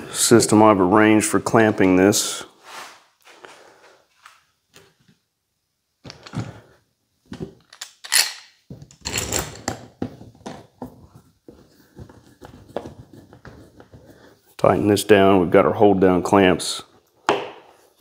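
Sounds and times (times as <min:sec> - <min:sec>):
clamps knocking and scraping: 0:07.3 - 0:14.0.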